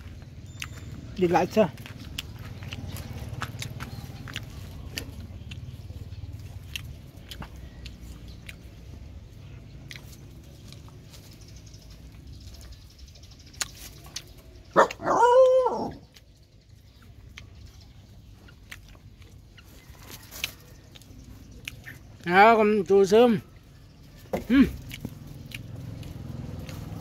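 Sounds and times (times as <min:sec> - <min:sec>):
dog barking call: 0:14.7 - 0:16.0.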